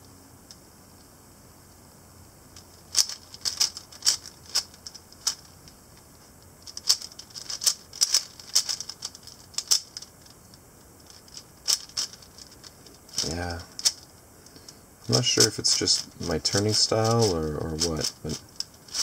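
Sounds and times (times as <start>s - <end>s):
speed cube clacking: 2.6s - 5.8s, 6.6s - 10.4s, 11.0s - 14.1s, 15.0s - 19.0s.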